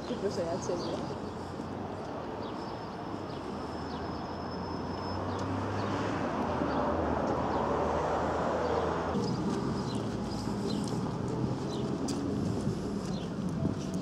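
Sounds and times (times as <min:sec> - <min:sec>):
vehicle approaching: 0:04.6 - 0:14.0.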